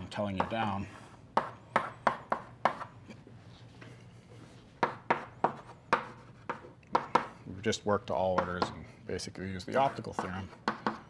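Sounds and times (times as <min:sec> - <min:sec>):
chalk tapping on a blackboard: 0:00.3 - 0:00.7, 0:01.4 - 0:02.9, 0:04.8 - 0:07.4, 0:09.8 - 0:11.0.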